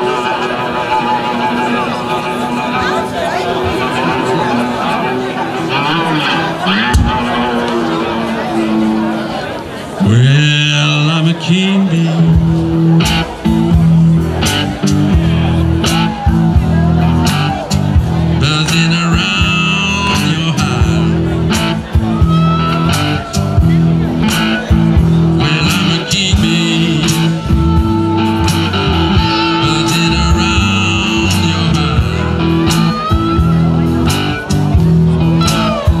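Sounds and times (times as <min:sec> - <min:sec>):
cigar-box guitars: 0:00.0 - 0:36.0
harmonica phrases: 0:00.0 - 0:36.0
steady drum beat: 0:06.9 - 0:07.6, 0:12.3 - 0:36.0.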